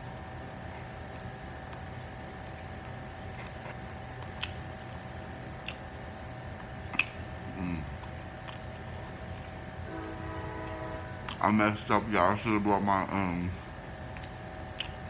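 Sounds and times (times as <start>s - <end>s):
pizza crust tearing and chewing: 0.0s - 15.0s
steady hum: 0.0s - 15.0s
mouth clicks: 6.9s - 7.8s
person humming mm: 7.5s - 7.9s.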